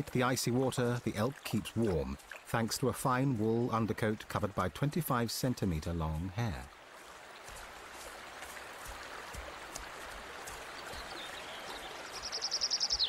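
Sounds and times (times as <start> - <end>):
fast-flowing river rushing: 6.0 - 13.0.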